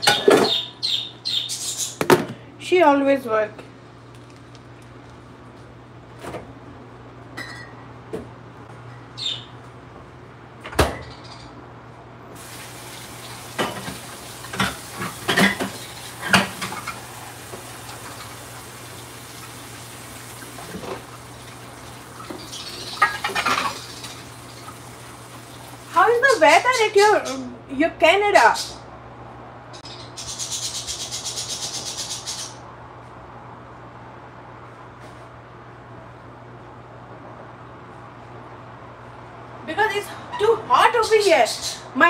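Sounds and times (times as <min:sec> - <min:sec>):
dishes and utensils clinking: 0:07.4 - 0:07.8, 0:13.6 - 0:17.1, 0:22.4 - 0:24.2
running water: 0:12.4 - 0:27.0.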